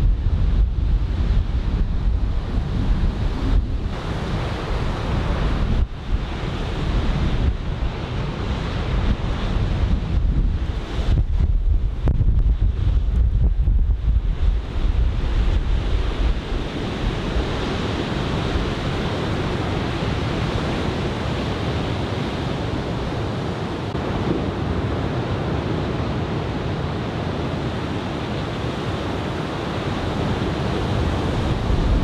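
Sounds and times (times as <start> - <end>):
wind buffeting microphone: 0.0 - 32.0
ocean surf breaking: 0.3 - 12.1, 14.1 - 32.0.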